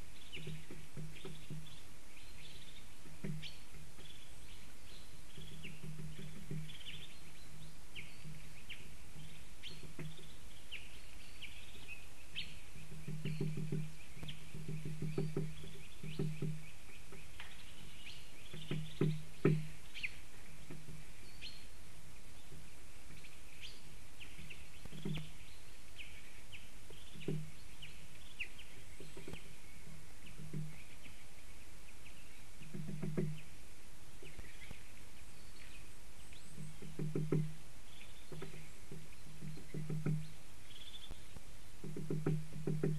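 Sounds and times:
low dull thuds: 0.0s - 1.9s, 3.0s - 4.2s, 5.3s - 7.1s, 8.1s - 10.4s, 12.8s - 17.6s, 18.4s - 19.9s, 24.8s - 25.6s, 26.8s - 27.9s, 28.7s - 31.1s, 32.6s - 33.5s, 36.5s - 40.4s, 41.1s - 42.9s
small birds chirping: 0.0s - 42.9s.

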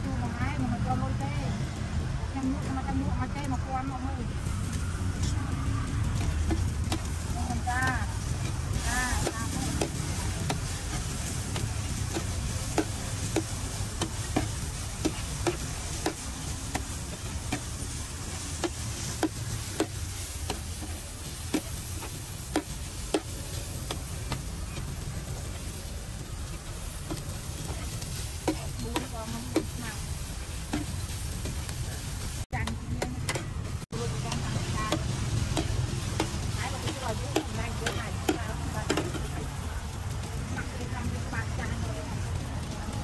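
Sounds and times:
food sizzling: 0.0s - 43.0s
metal spatula scraping on griddle: 4.4s - 32.4s.

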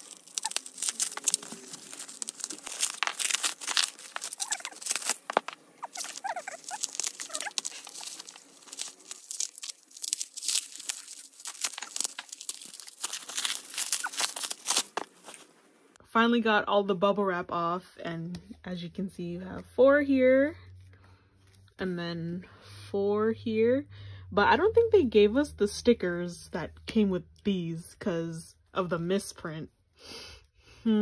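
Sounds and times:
bubble wrap crinkling: 0.0s - 15.6s.

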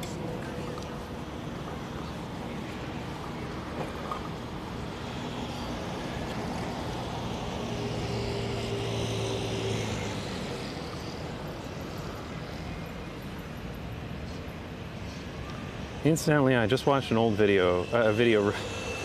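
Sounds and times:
street noise: 0.0s - 19.0s
motor vehicle passing: 6.7s - 11.4s.

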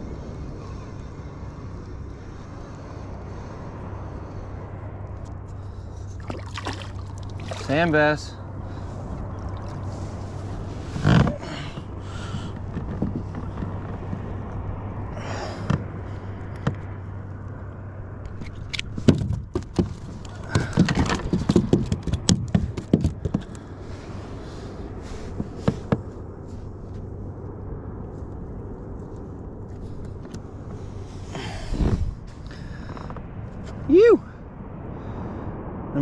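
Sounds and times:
steady low hum: 0.0s - 36.0s
fish knocking against plastic hull: 19.0s - 23.6s.

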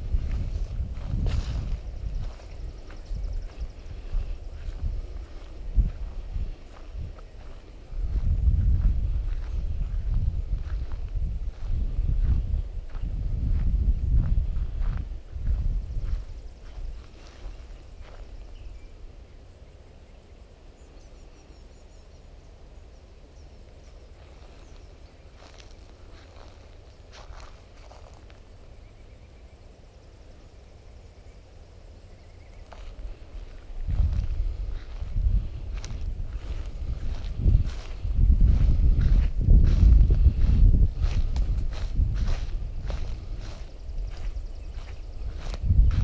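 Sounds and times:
footstep crunching on pine straw: 0.0s - 18.4s, 24.2s - 28.6s, 32.6s - 46.0s
wind rumble on microphone: 0.0s - 46.0s
small bird chirping: 0.1s - 8.2s, 9.3s - 46.0s.

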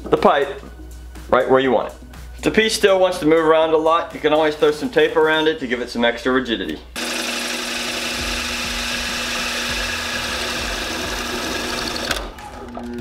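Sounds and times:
drill bit cutting pipe: 7.0s - 12.3s
drill press motor hum: 7.0s - 12.4s.

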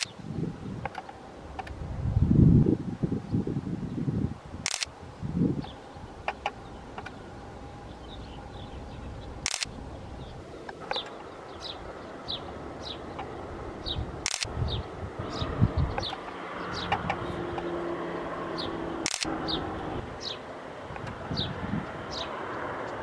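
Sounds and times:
low rumbles: 0.0s - 23.0s
sharp clicks: 4.6s - 4.9s, 9.4s - 9.8s, 14.2s - 14.5s, 19.0s - 19.3s
small bird chirping: 5.6s - 17.8s.

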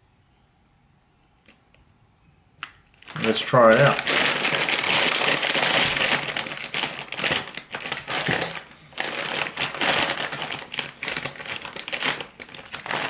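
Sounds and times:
foil bag crinkling: 3.0s - 13.0s.

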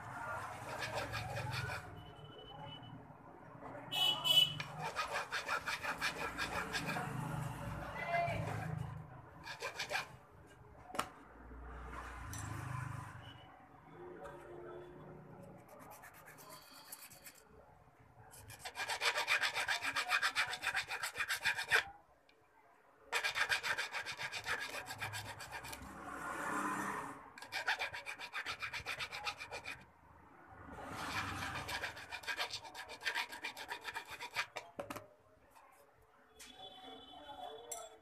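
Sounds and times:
hand file rasping on metal: 0.4s - 1.9s, 4.6s - 7.6s, 8.3s - 10.2s, 15.6s - 17.4s, 18.3s - 21.9s, 23.1s - 25.9s, 27.4s - 29.9s, 30.8s - 34.7s.

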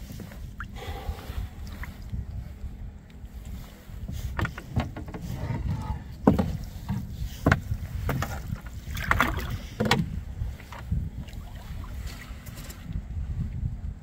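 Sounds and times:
wind rumble on microphone: 0.0s - 14.0s
gear knocking against boat: 4.1s - 10.9s.

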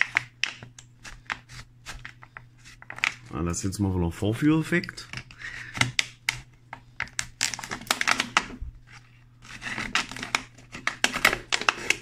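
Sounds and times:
scissors snipping plastic: 0.0s - 2.2s, 4.9s - 8.6s, 9.4s - 12.0s
plastic crinkling and crackling: 0.0s - 3.4s, 4.9s - 12.0s.

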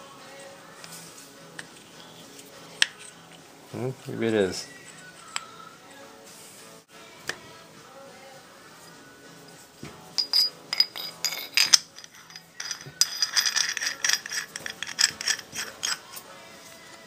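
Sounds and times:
steel parts clinking and scraping: 1.6s - 3.4s, 10.2s - 16.3s.

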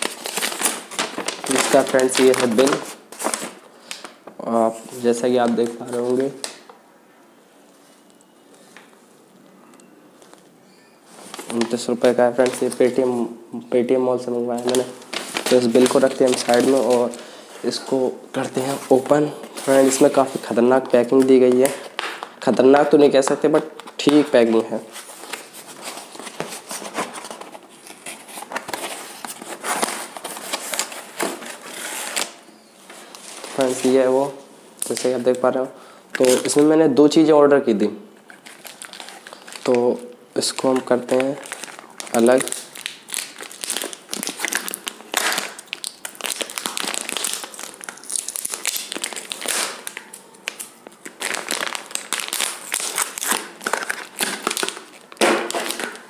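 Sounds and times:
cardboard packaging being torn: 0.0s - 4.1s, 14.6s - 17.2s, 25.1s - 32.4s, 38.3s - 39.8s, 40.6s - 56.0s.

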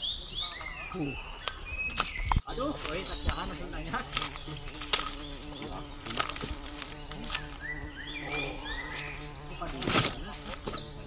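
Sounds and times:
insects buzzing: 0.0s - 11.0s
footsteps crunching through leaves: 2.0s - 10.8s.

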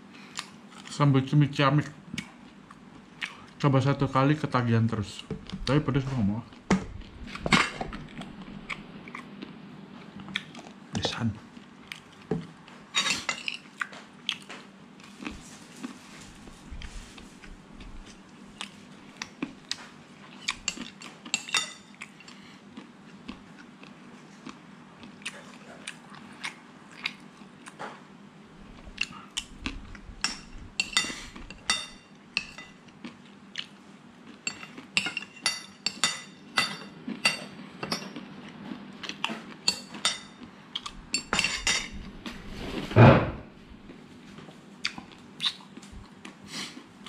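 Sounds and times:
chewing: 7.3s - 10.8s, 13.5s - 27.9s, 44.8s - 47.0s.

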